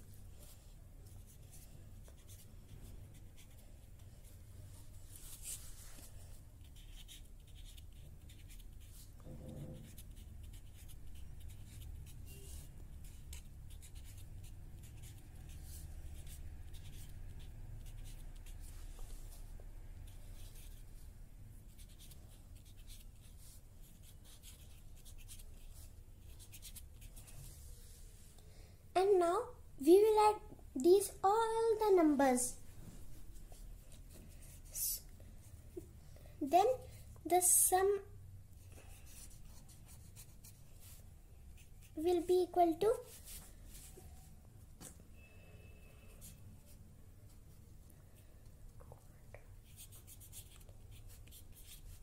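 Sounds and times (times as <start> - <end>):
pen scratching on paper: 0.4 - 4.0, 5.1 - 19.4, 20.0 - 21.0, 21.7 - 27.3, 39.0 - 41.0, 49.6 - 52.0.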